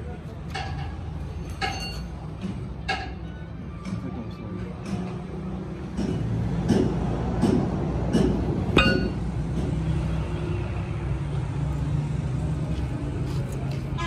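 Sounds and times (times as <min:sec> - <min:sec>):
metal clanks: 0:00.5 - 0:04.0, 0:05.8 - 0:09.8.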